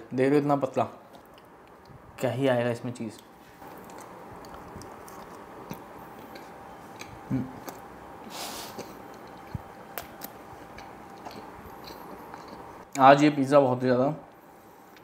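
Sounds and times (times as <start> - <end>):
steady background hum: 0.0 - 15.0
close-miked chewing: 3.6 - 7.9, 8.7 - 13.0
breath through the nose: 8.3 - 9.0.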